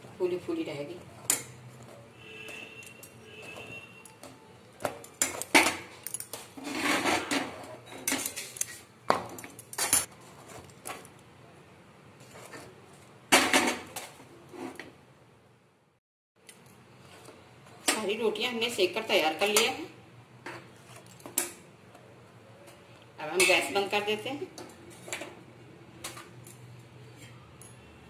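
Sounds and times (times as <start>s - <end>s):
spatula scraping metal: 6.6s - 8.9s.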